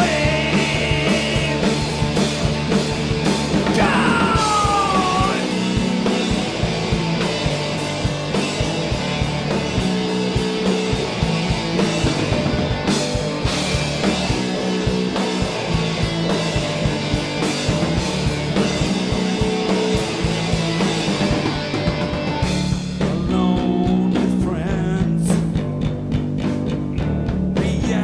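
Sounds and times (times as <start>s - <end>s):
man singing: 0.0s - 1.8s, 3.6s - 5.6s, 23.0s - 25.6s, 27.0s - 28.0s
distorted electric guitars: 0.0s - 28.0s
drum kit: 0.0s - 28.0s.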